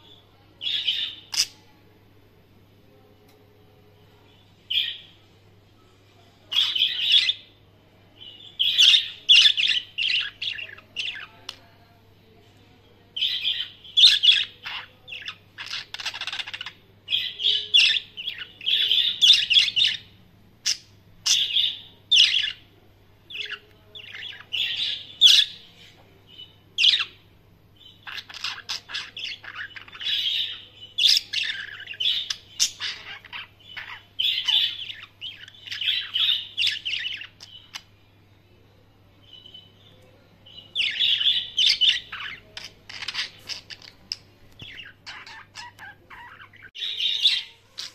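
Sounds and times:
budgerigars chirping and warbling: 0:00.6 - 0:01.6, 0:06.5 - 0:07.5, 0:08.3 - 0:11.6, 0:13.2 - 0:22.6, 0:23.3 - 0:25.7, 0:26.3 - 0:27.2, 0:27.8 - 0:37.9, 0:40.6 - 0:47.9.

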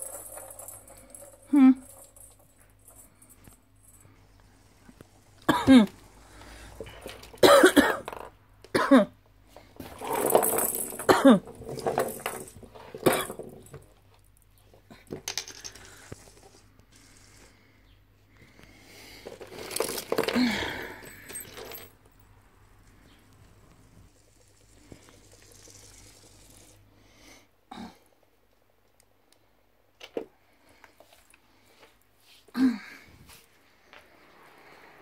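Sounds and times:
rustling and clatter of toys: 0:00.0 - 0:08.4, 0:09.5 - 0:17.6, 0:18.4 - 0:22.2, 0:22.8 - 0:26.8, 0:30.0 - 0:32.5
person coughing: 0:05.5 - 0:06.0, 0:07.4 - 0:08.1, 0:08.7 - 0:09.2, 0:11.0 - 0:11.5.

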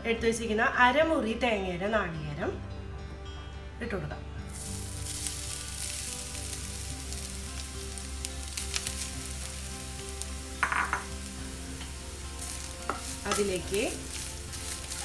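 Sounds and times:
coconut sizzling in hot oil: 0:04.4 - 0:15.0.

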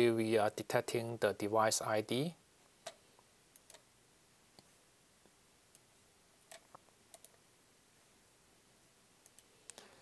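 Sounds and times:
computer mouse clicks: 0:02.8 - 0:03.8, 0:06.5 - 0:07.4, 0:09.2 - 0:09.8.

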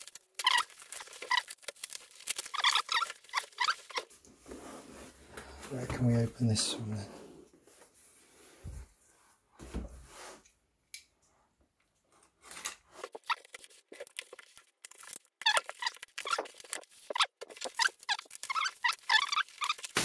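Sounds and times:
packing tape tearing: 0:00.0 - 0:04.1, 0:13.0 - 0:20.0
bubble wrap crinkling: 0:00.0 - 0:04.2, 0:13.0 - 0:20.0.

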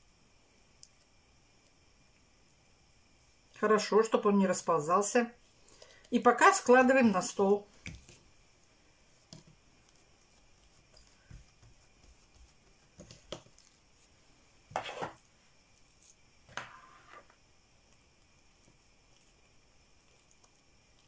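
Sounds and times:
hands patting dough: 0:09.2 - 0:15.2
spoon scraping plastic bowl: 0:14.7 - 0:15.3, 0:16.0 - 0:17.4.

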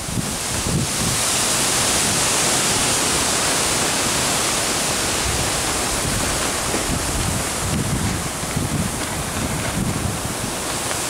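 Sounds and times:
strong wind rushing: 0:00.0 - 0:11.0
wind rumble on microphone: 0:00.0 - 0:11.0.

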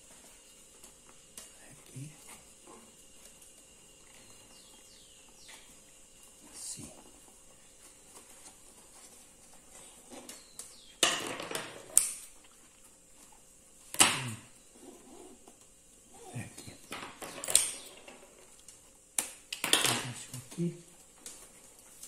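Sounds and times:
paper tubes rustling and scraping: 0:06.4 - 0:10.4.

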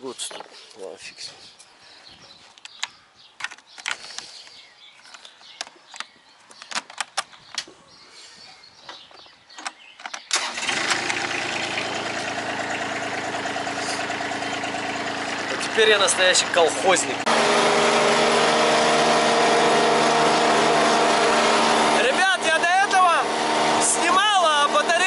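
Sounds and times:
tractor engine running: 0:10.3 - 0:25.0.

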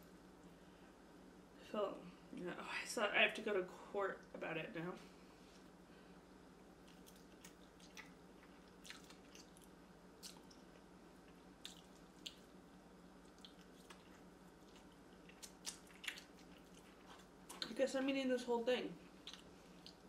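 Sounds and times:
wet chewing and mouth smacks: 0:06.8 - 0:12.6, 0:13.2 - 0:17.8, 0:19.1 - 0:20.0.

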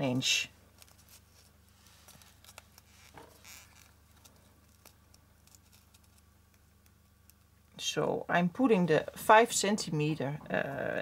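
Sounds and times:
low steady hum: 0:00.0 - 0:11.0
fingers rustling ribbon: 0:00.6 - 0:07.5.

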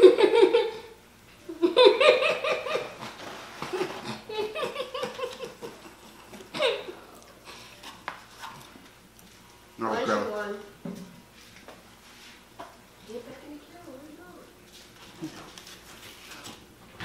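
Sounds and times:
people laughing: 0:03.8 - 0:07.0.

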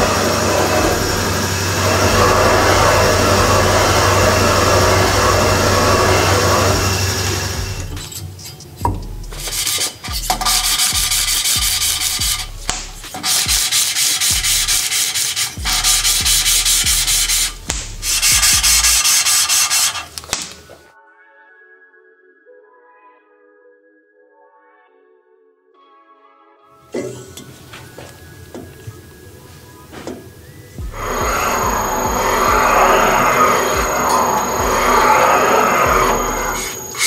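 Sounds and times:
machine hum: 0:00.0 - 0:13.6, 0:14.3 - 0:20.2, 0:27.0 - 0:37.0
rasping cutting noise: 0:00.0 - 0:20.4, 0:30.8 - 0:37.0.

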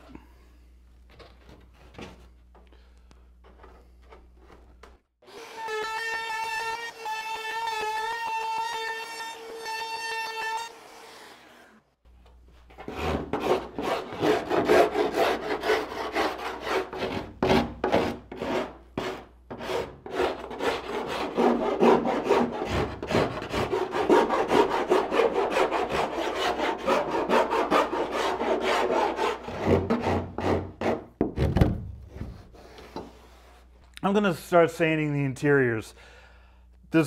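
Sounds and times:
hand rasp on wood: 0:12.8 - 0:31.1.

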